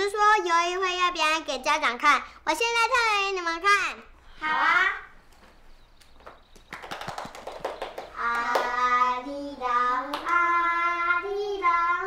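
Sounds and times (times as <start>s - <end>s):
hand claps: 6.0s - 8.9s, 10.0s - 10.4s
child singing: 8.2s - 12.0s.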